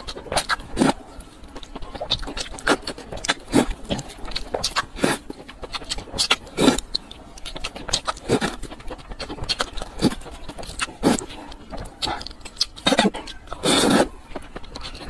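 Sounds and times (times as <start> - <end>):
slurping noodles: 6.3 - 6.9, 12.8 - 14.2.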